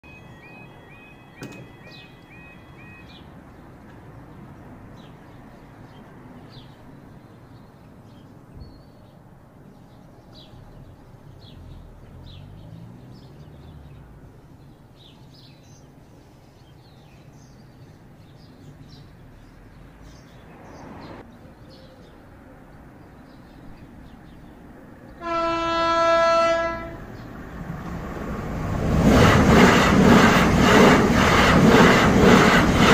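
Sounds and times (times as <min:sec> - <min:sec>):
birds chirping: 0:00.0 - 0:28.0.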